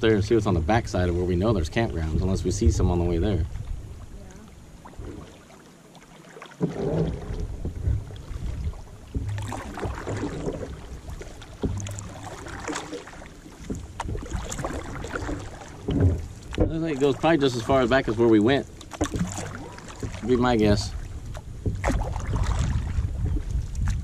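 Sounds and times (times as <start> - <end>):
paddle splashing in water: 1.1 - 24.0
wind on microphone: 6.7 - 12.1, 20.1 - 24.0.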